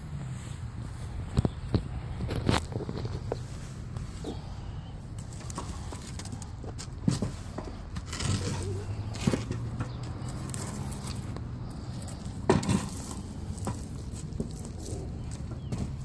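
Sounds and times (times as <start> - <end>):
shoe scuffing metal fire pit: 5.2 - 16.0.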